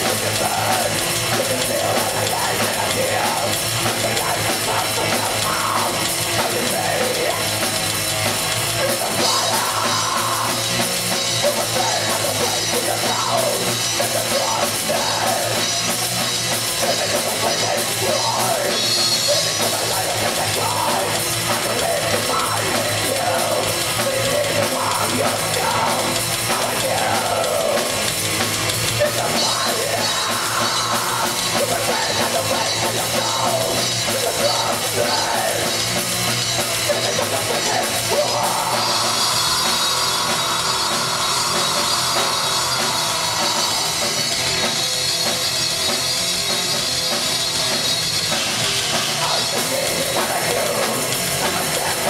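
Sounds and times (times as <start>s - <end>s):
bass guitar: 0.0s - 52.0s
distorted electric guitar: 0.0s - 52.0s
drum kit with crashing cymbals: 0.0s - 52.0s.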